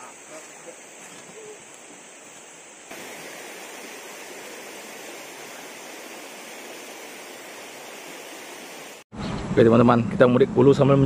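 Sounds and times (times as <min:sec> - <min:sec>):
river water flowing: 0:02.9 - 0:09.0.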